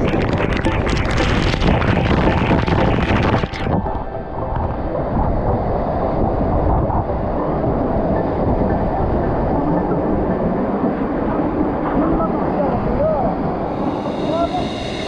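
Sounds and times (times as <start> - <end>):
water spilling into pool: 0.0 - 3.8
waterfall rushing onto camera: 0.0 - 7.5.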